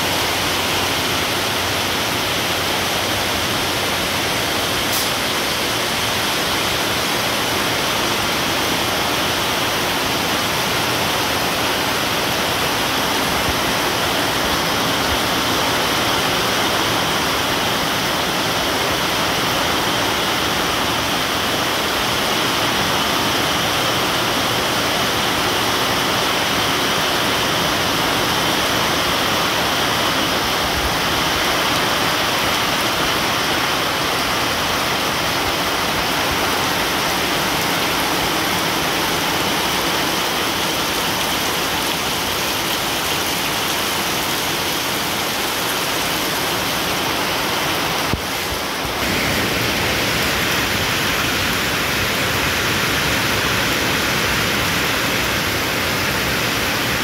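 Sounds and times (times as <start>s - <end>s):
heavy rain on leaves: 0.0s - 57.0s.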